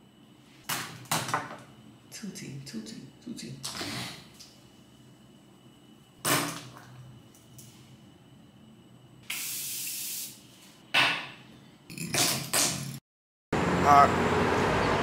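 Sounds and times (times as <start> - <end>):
spray hissing: 9.2 - 10.4.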